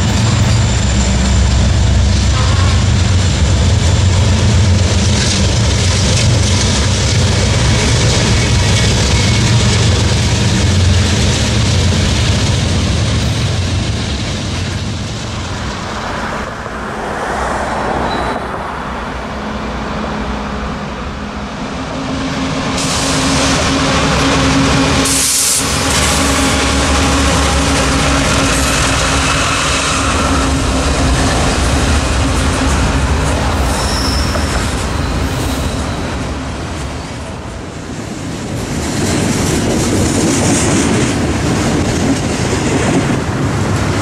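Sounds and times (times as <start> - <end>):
diesel locomotive engine hum: 0.0 - 44.0
freight train cars rolling on rails: 0.0 - 44.0.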